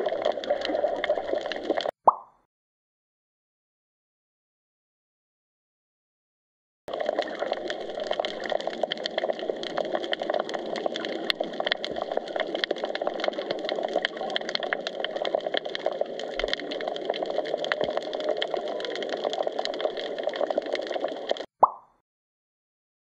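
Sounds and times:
underwater crackle of clicks: 0.0s - 2.3s, 6.9s - 21.9s
muffled water hiss: 6.9s - 21.5s.

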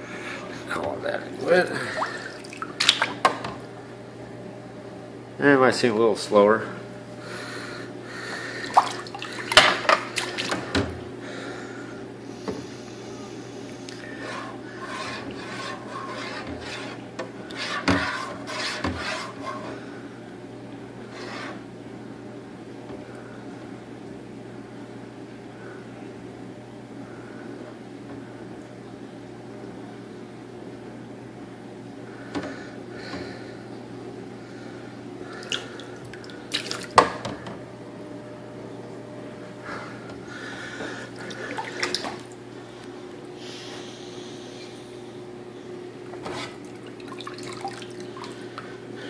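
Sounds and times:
water dripping and splashing: 2.0s - 3.2s, 35.4s - 37.0s, 46.7s - 48.4s
hand rubbing on metal fittings: 14.2s - 19.8s.

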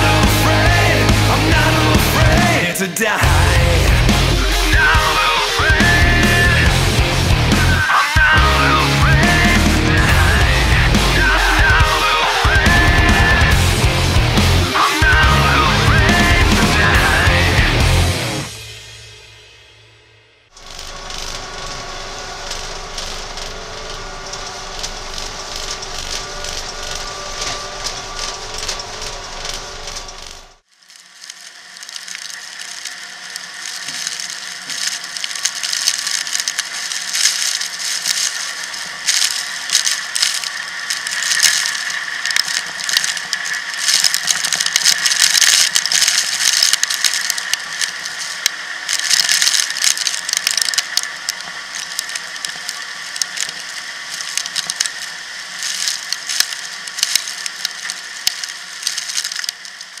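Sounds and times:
machinery whine: 0.0s - 60.0s
harvest machinery clattering: 20.5s - 60.0s.

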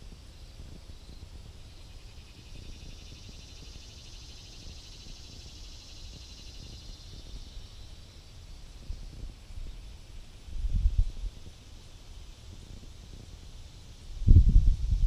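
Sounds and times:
insect pulsing buzz: 0.0s - 15.0s
wind rumble on microphone: 0.0s - 15.0s.

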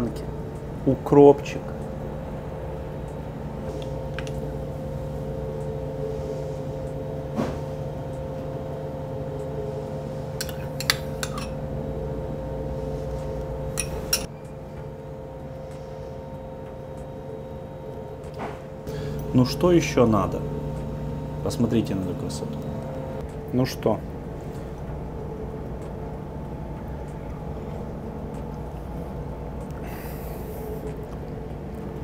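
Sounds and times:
machinery hum: 0.0s - 32.0s
metal spoon clinking on glass: 10.4s - 11.6s, 13.8s - 14.3s.

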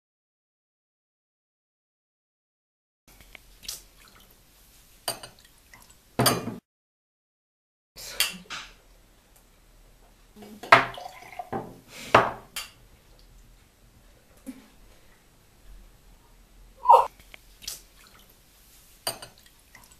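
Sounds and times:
liquid pouring into glass: 10.7s - 11.6s.

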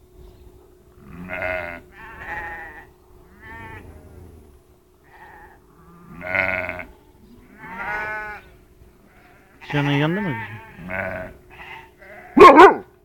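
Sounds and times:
dog whining and yelping: 12.4s - 12.8s.

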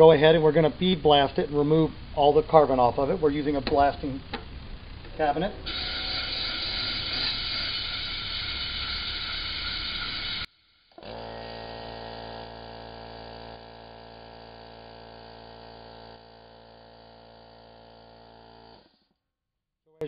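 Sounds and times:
loud abrasive hiss: 0.0s - 10.5s
steady hum: 0.0s - 10.5s.

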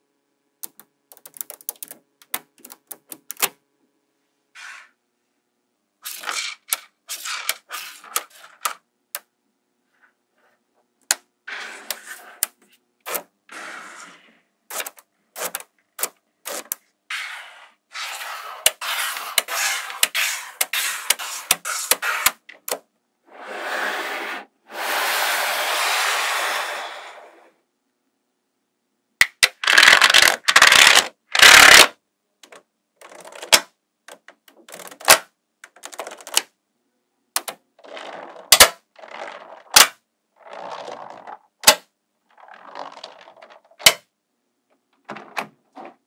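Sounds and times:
magnetic balls clicking and rattling: 0.6s - 3.5s, 6.0s - 9.3s, 29.2s - 36.5s, 37.4s - 44.0s.

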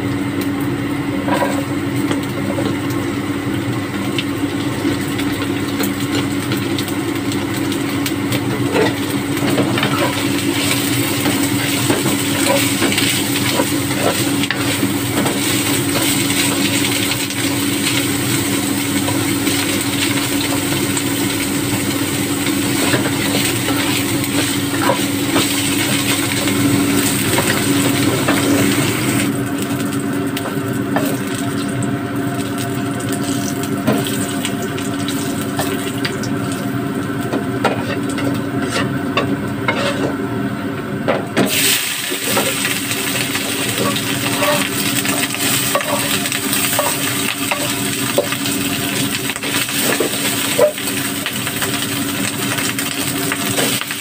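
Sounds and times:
food sizzling in oil: 0.0s - 40.7s, 41.4s - 54.0s
spatula scraping a wok: 37.7s - 39.0s, 39.6s - 40.2s, 43.5s - 48.3s.

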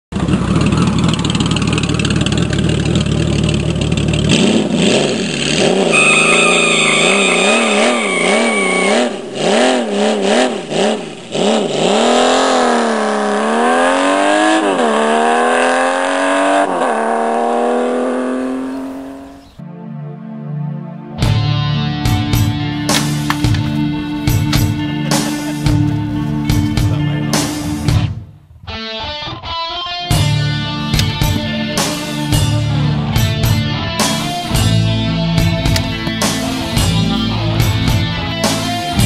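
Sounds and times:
engine revving: 0.1s - 19.6s
rock music: 21.1s - 39.0s.

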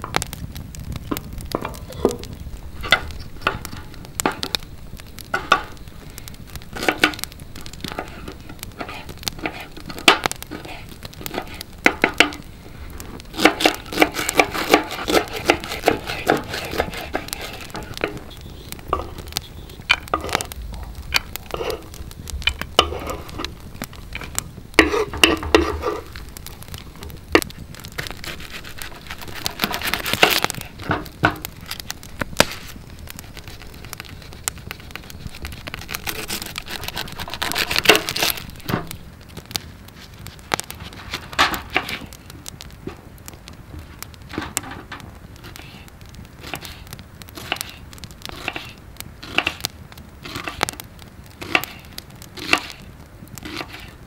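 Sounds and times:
peeling: 0.0s - 54.0s
wood fire crackling: 0.0s - 54.0s.

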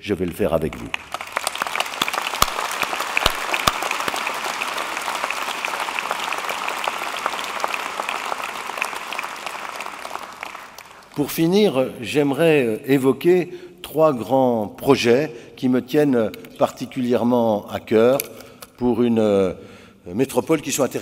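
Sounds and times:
sharp claps close to microphone: 0.2s - 11.4s
large audience applauding: 0.2s - 11.6s.

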